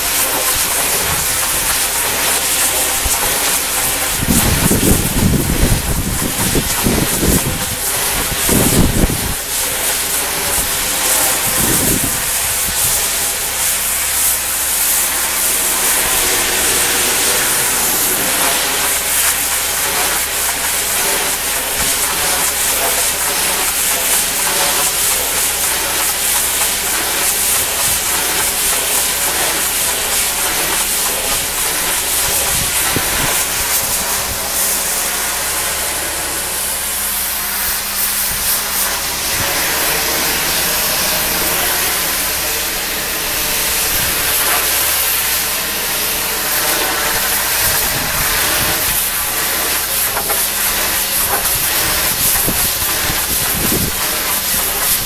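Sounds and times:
pressure washer spray hissing: 0.0s - 55.0s
engine humming: 14.4s - 19.9s.

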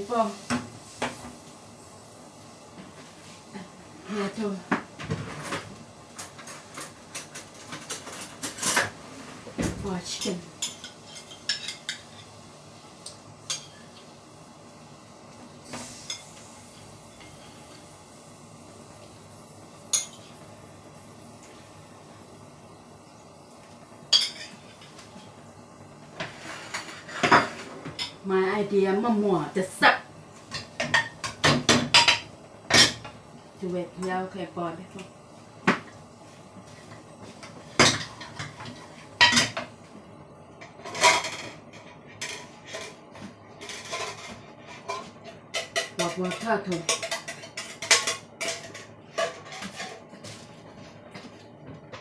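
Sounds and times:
dishes clattering on counter: 26.2s - 28.2s, 30.5s - 33.2s, 37.7s - 39.7s, 43.6s - 50.4s.

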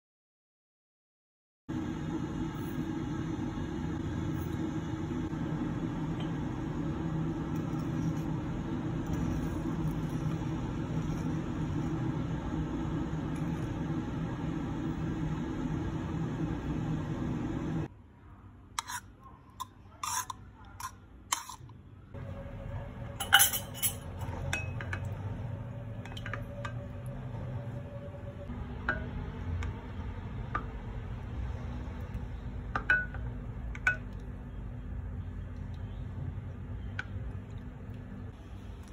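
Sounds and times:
low hum: 1.7s - 17.9s, 22.1s - 38.9s
utensils clinking against glass: 23.2s - 25.1s.

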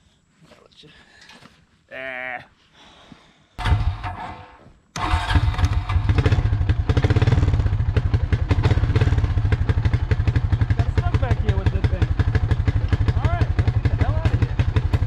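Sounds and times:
atv engine starting and running: 3.6s - 15.0s.

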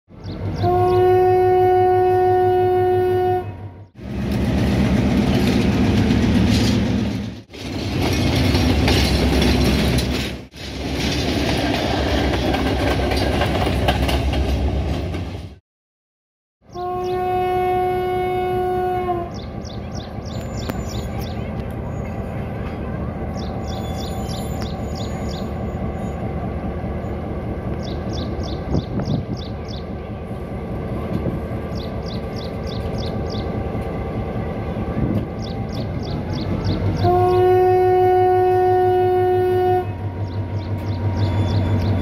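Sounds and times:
train running rumble: 0.1s - 15.6s, 16.8s - 42.0s
locomotive horn blast: 0.6s - 3.8s, 16.7s - 19.4s, 37.0s - 40.1s.

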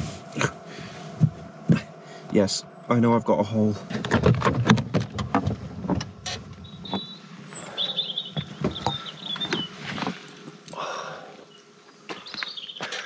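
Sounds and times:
faint high chirps: 6.6s - 9.8s.

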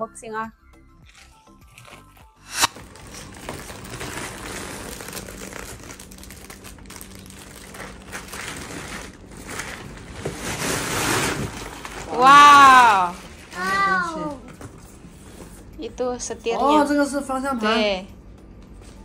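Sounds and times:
plastic sack crinkling: 2.7s - 13.7s.

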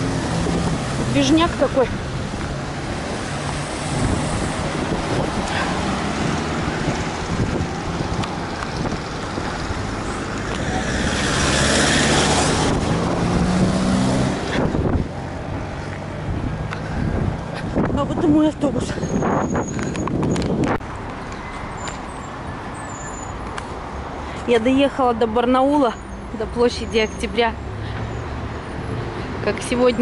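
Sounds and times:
vehicle passing close: 0.0s - 20.8s
cars driving past: 0.0s - 30.0s.

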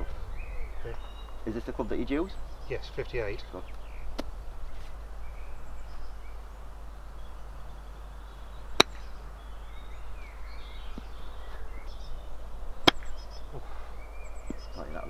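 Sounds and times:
faint birdsong: 0.0s - 15.0s
low rumble: 0.0s - 15.0s
golf club striking ball: 3.7s - 4.4s, 8.7s - 9.2s, 12.8s - 13.2s.

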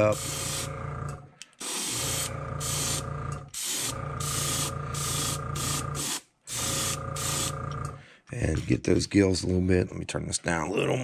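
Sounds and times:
steady low hum: 0.0s - 1.4s, 2.0s - 8.7s
airbrush spraying hiss: 0.1s - 0.7s, 1.6s - 7.5s.

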